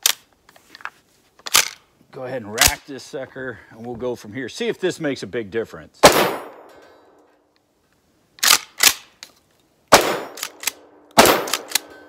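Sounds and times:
shotgun blasts: 6.0 - 6.7, 9.9 - 11.9.

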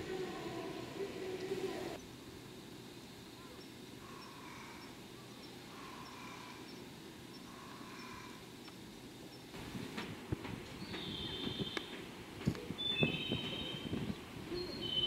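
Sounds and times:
short bird calls: 7.4 - 8.4.

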